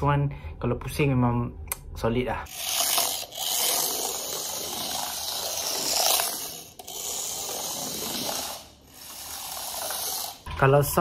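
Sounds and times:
toy car motor whirring: 0:02.5 - 0:10.5.

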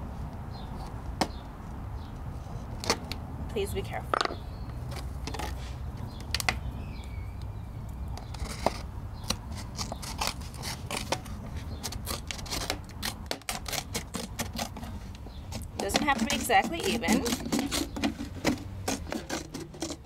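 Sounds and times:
scissors snipping plastic bottle: 0:15.6 - 0:20.0.

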